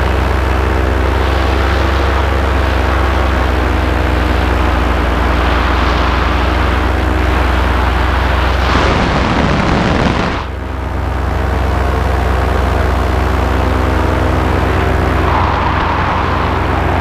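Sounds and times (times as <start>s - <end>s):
paramotor engine and propeller: 0.0s - 17.0s
wind noise on microphone: 1.2s - 10.6s.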